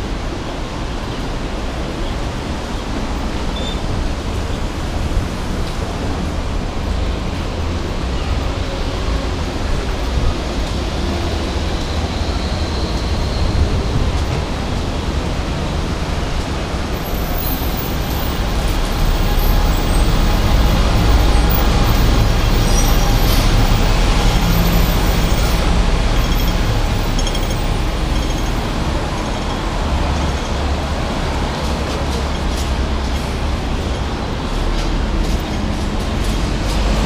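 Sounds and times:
bus passing close: 0:00.0 - 0:37.0
city road traffic: 0:00.0 - 0:37.0.

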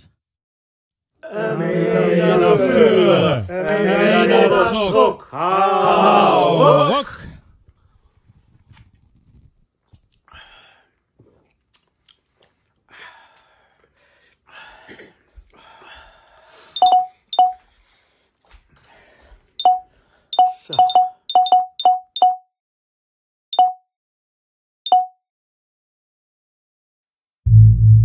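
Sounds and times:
electronic pings: 0:16.8 - 0:17.6, 0:19.6 - 0:19.8, 0:20.4 - 0:22.4, 0:23.6 - 0:23.8, 0:24.9 - 0:25.1.

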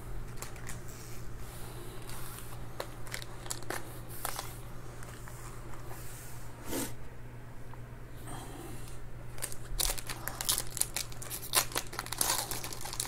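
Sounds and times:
foil packs crinkling: 0:00.2 - 0:00.9, 0:02.0 - 0:05.3, 0:09.3 - 0:13.0.

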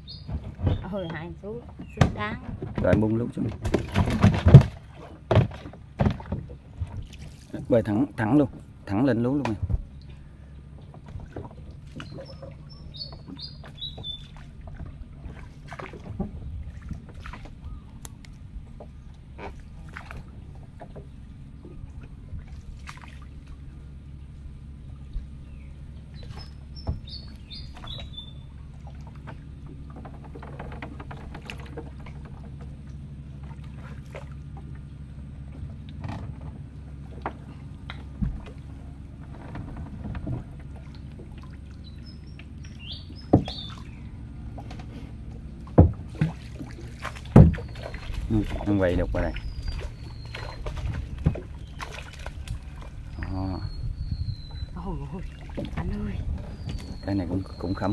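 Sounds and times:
bird calling: 0:00.0 - 0:02.1, 0:09.9 - 0:15.5, 0:17.5 - 0:18.2, 0:23.3 - 0:33.4, 0:40.6 - 0:57.9
paddle strokes in water: 0:00.0 - 0:57.9
steady low hum: 0:00.0 - 0:57.9
knocks against boat hull: 0:00.2 - 0:07.1, 0:26.2 - 0:28.2, 0:42.9 - 0:43.8, 0:45.6 - 0:52.6.

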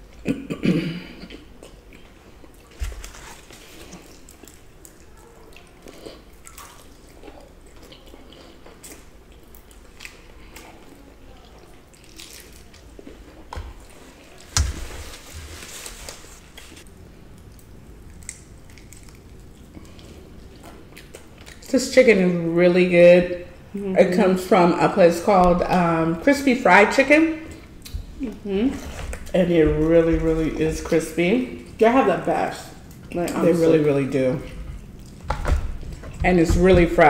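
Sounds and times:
chewing crispy fried chicken: 0:01.2 - 0:14.5, 0:16.5 - 0:21.7.

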